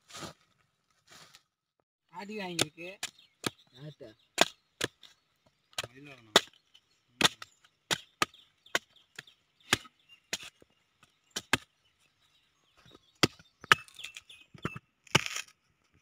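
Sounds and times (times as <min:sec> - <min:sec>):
machete chopping fruit husk: 0:02.4 - 0:03.6, 0:04.4 - 0:05.1, 0:05.7 - 0:06.6, 0:07.2 - 0:10.6, 0:11.3 - 0:11.8, 0:13.2 - 0:14.2, 0:15.1 - 0:15.5.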